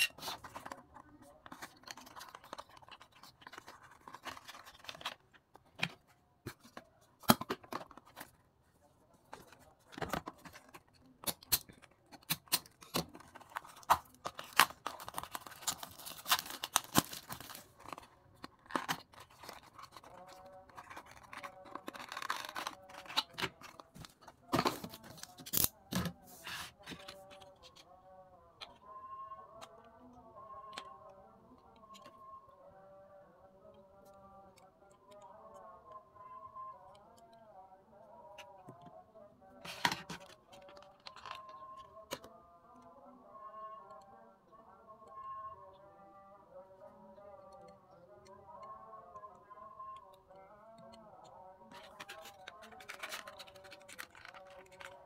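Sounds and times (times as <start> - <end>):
stiff plastic cracking and crinkling: 0.0 - 8.4, 9.3 - 26.2, 39.6 - 42.4, 50.3 - 55.0
plastic packaging cut with knife: 11.2 - 18.0, 18.6 - 26.2, 51.8 - 55.0.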